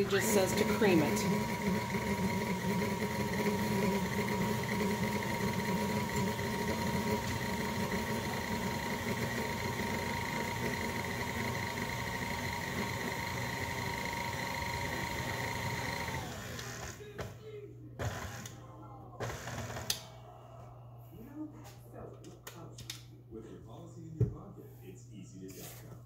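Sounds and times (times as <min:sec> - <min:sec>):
stand mixer humming: 0:00.0 - 0:17.0.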